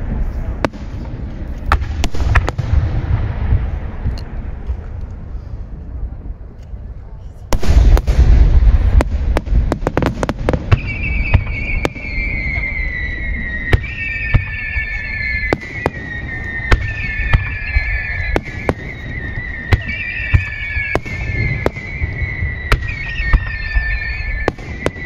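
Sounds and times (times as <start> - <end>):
fireworks bursting: 0.0 - 5.2, 7.5 - 25.0
low rumble: 0.0 - 13.7
descending high whistle: 10.7 - 25.0.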